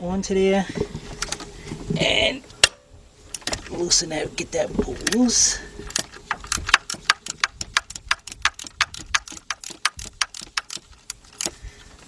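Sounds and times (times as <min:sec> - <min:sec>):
ratchet clicking rapidly: 0:05.9 - 0:11.6.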